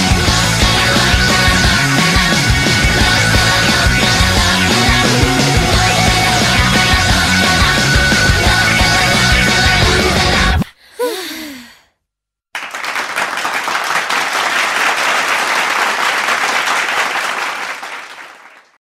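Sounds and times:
pop song: 0.0s - 10.7s
person sighing: 10.6s - 11.9s
applause: 12.6s - 18.8s.

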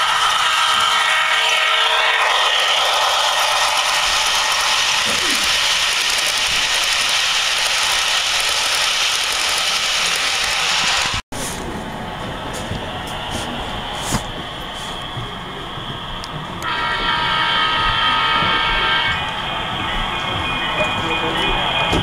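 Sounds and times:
model locomotive motor whining: 0.0s - 11.2s, 16.2s - 19.5s
train wheels clicking over track: 0.0s - 16.7s.

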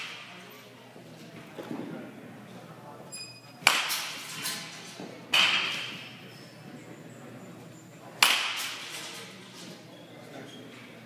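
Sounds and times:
baseball bat striking balls: 3.6s - 4.3s, 5.3s - 6.1s, 8.2s - 8.9s.

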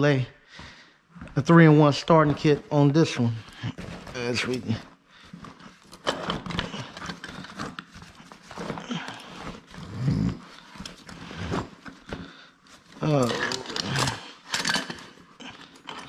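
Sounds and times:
fabric tool bag rustling: 1.2s - 16.0s
hand tools clattering: 13.0s - 16.0s.

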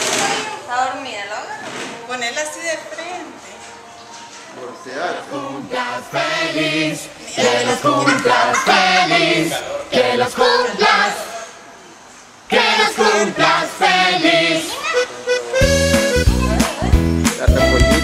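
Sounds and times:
group singing unaccompanied: 4.8s - 11.7s, 12.4s - 15.0s.

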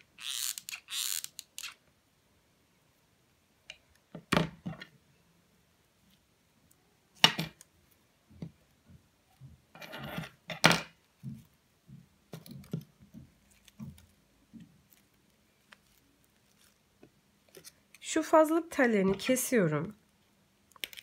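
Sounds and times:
rustling: 11.0s - 17.8s.

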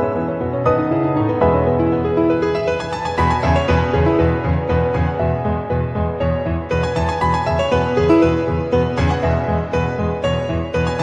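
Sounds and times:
music with held notes and beat: 3.0s - 11.0s.

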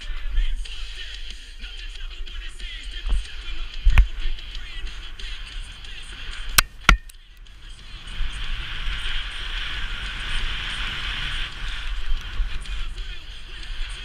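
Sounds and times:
snowboard sliding through snow: 0.0s - 6.5s, 7.5s - 14.0s
low wind rumble: 0.0s - 14.0s
sharp knocks: 6.6s - 7.1s.

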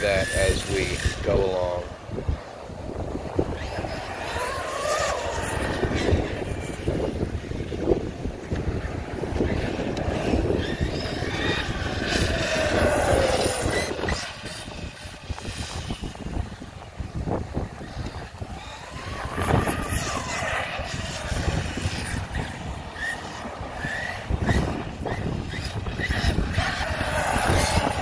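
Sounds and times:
electric motor whining: 0.0s - 28.0s
tyres rolling on pavement: 3.5s - 15.6s, 19.9s - 28.0s.

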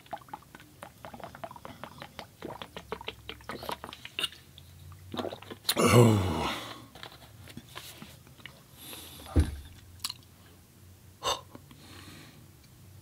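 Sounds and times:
soft breaths: 8.7s - 9.5s
low thud: 9.3s - 9.7s.

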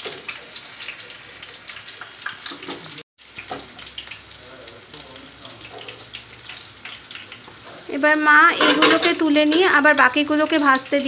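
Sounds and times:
oil crackles and pops: 0.0s - 7.9s
fish deep-frying in oil: 0.0s - 11.0s.

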